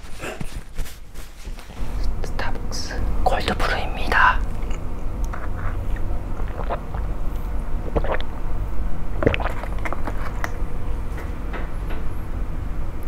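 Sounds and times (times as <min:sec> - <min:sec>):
steady low hum: 0:00.0 - 0:13.0
slurping through a straw: 0:05.4 - 0:07.1, 0:07.8 - 0:08.3, 0:09.2 - 0:10.4.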